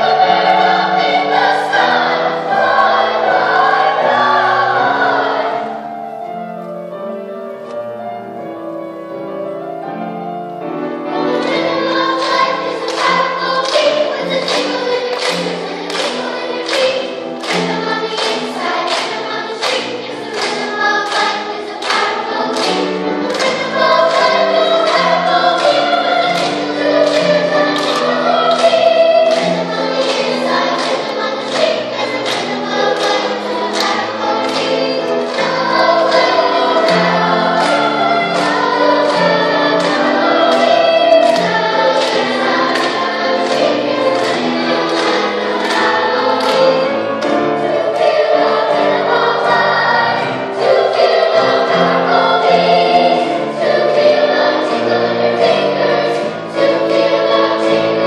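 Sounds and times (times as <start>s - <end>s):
children's choir singing: 0.0s - 58.0s
hand claps: 11.4s - 48.1s.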